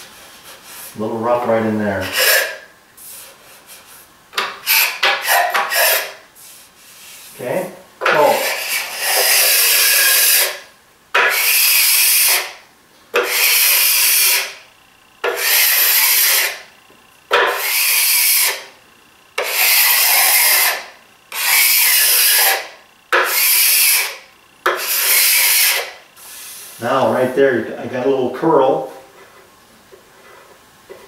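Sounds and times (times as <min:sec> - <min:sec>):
hand scraper scraping wood finish: 0:02.0 - 0:07.4, 0:08.1 - 0:10.6, 0:11.2 - 0:14.6, 0:15.2 - 0:16.7, 0:17.3 - 0:18.7, 0:19.4 - 0:26.8.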